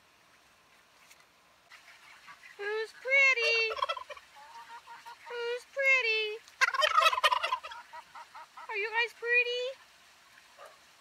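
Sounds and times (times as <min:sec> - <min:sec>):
turkey gobbling: 0:01.7 - 0:05.5, 0:06.5 - 0:08.9.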